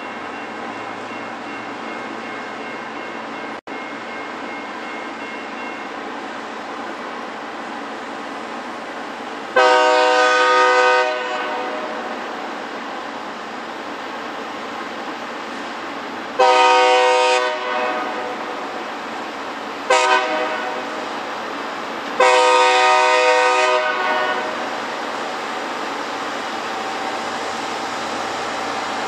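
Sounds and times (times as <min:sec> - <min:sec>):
train rumble and hiss: 0:00.0 - 0:29.0
train air horn blasts: 0:09.6 - 0:12.2, 0:16.4 - 0:18.8, 0:19.9 - 0:21.0, 0:22.2 - 0:24.8.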